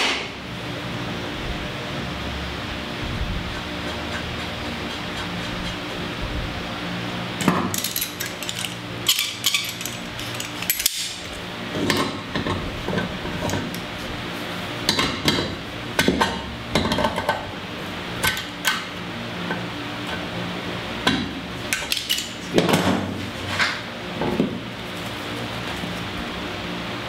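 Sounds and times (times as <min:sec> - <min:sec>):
steady low hum: 0:00.0 - 0:27.0
metal tools clinking: 0:07.7 - 0:11.1.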